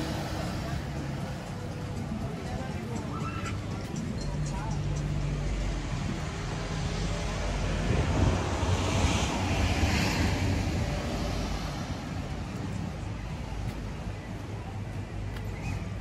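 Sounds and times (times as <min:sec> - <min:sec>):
vehicle passing: 0:04.6 - 0:13.6.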